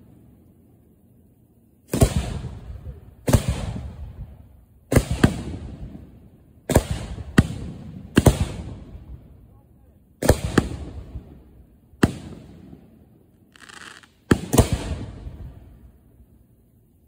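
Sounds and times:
firework launch bangs: 1.8 - 4.2, 4.9 - 6.1, 13.6 - 15.6.

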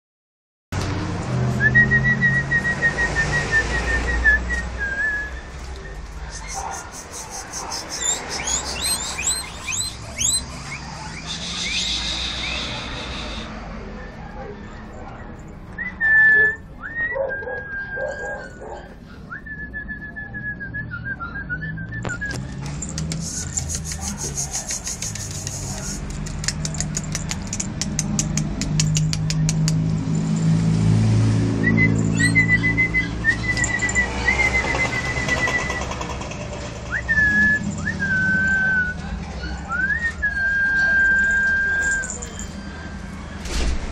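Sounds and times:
person whistling: 1.6 - 5.5, 6.3 - 10.4, 31.6 - 35.8
sharp click: 22.0 - 30.0.

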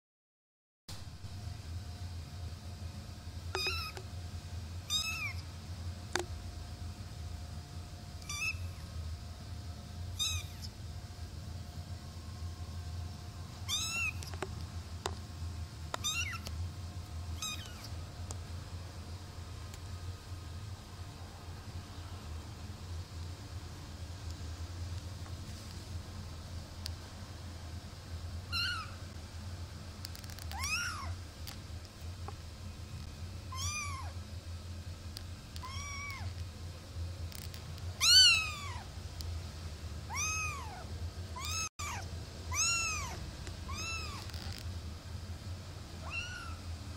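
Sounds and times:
low steady hum: 0.9 - 46.9
kitten mewing: 3.6 - 4.0, 4.9 - 5.5, 8.2 - 8.9, 10.1 - 10.8, 13.7 - 14.4, 16.0 - 16.5, 17.4 - 18.0, 28.5 - 29.0, 30.5 - 31.2, 33.5 - 34.2, 35.6 - 36.3, 38.0 - 38.9, 40.1 - 44.5, 46.0 - 46.6.

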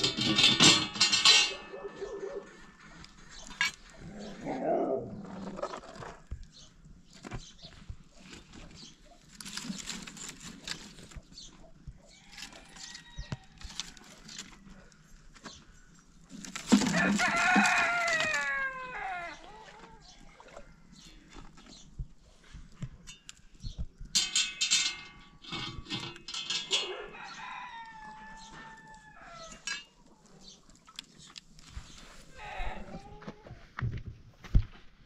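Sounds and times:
rooster crowing: 16.8 - 19.5, 27.0 - 29.6.

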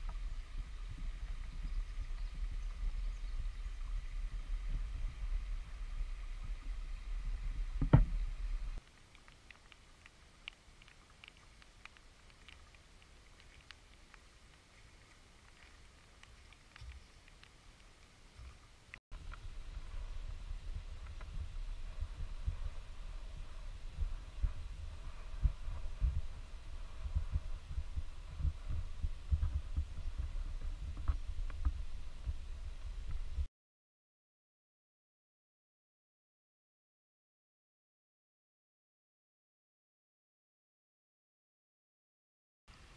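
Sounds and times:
low microphone rumble: 0.0 - 8.8, 19.2 - 33.5
creek trickling over stones: 0.0 - 33.5
soft thumps: 7.8 - 8.4
faint clicks: 8.8 - 19.4
faint ticks: 8.8 - 19.4.

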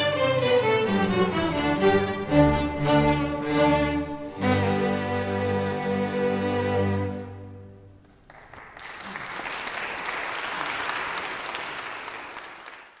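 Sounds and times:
string orchestra chord: 0.0 - 7.9
audience applause: 8.0 - 13.0.

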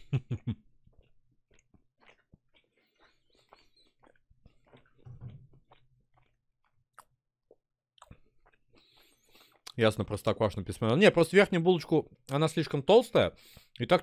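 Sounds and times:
person chewing food: 0.0 - 9.8.

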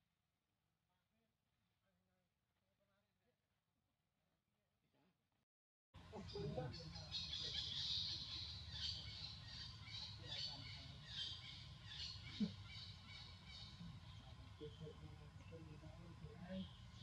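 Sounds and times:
low steady hum: 6.0 - 17.0.

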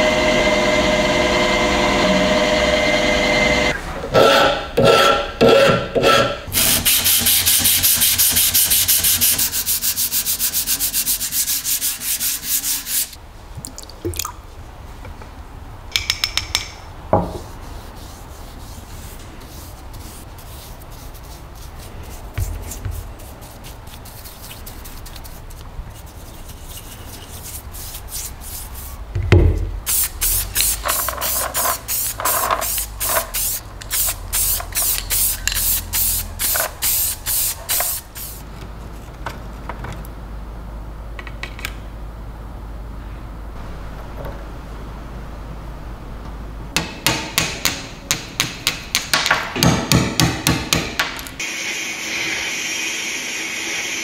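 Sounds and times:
sanding metal with abrasive pad: 5.5 - 13.2.

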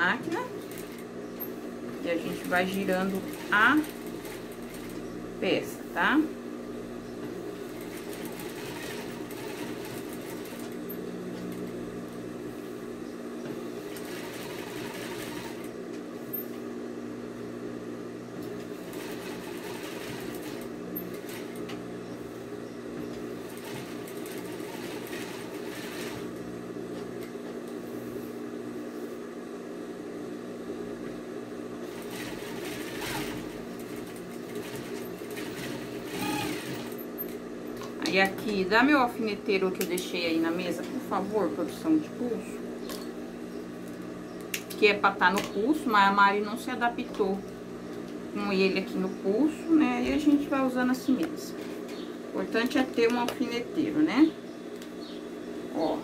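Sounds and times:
sewing machine stitching: 2.1 - 5.0, 7.8 - 10.8, 13.9 - 15.7, 18.9 - 21.6, 23.5 - 26.3, 31.9 - 37.4.

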